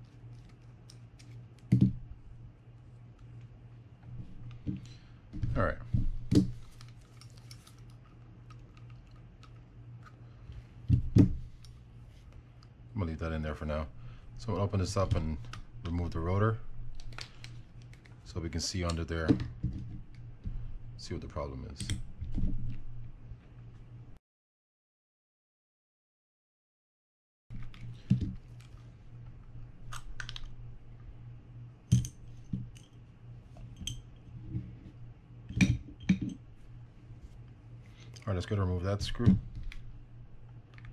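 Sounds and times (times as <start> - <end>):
faint low hum: 0.0 - 24.2, 27.5 - 40.9
sharp clicks of small parts handled: 6.7 - 10.2.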